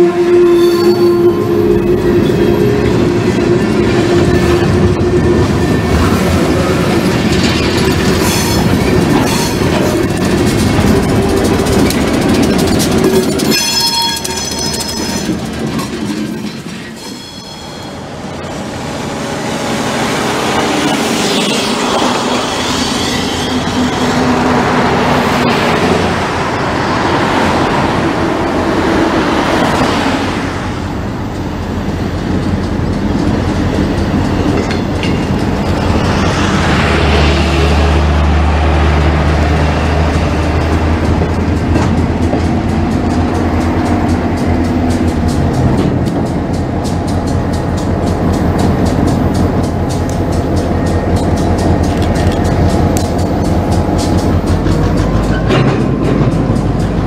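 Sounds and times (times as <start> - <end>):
train horn blasts: 0.0 - 6.6
diesel locomotive drone: 0.0 - 57.0
freight train rumbling past: 0.0 - 57.0
road vehicles swishing by: 35.4 - 42.0.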